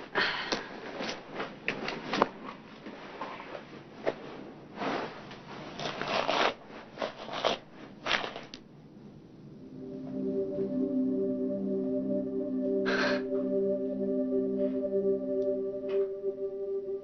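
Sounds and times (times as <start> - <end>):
soft sustained music notes: 9.4 - 17.0.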